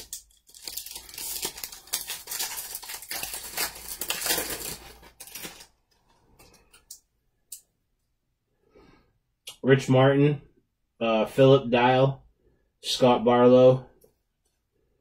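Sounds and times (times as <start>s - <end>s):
card pack wrapper tearing: 0.0s - 5.8s
wrapper crinkling: 0.0s - 6.0s.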